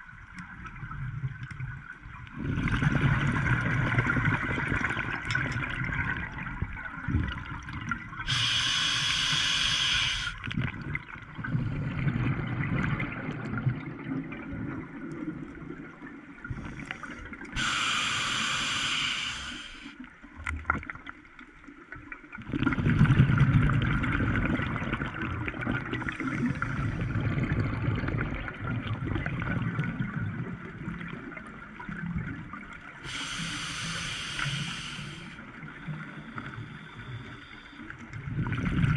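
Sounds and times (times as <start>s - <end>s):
hissing regulator inhalations: 8.3s - 10.4s, 17.6s - 20.0s, 33.0s - 35.4s.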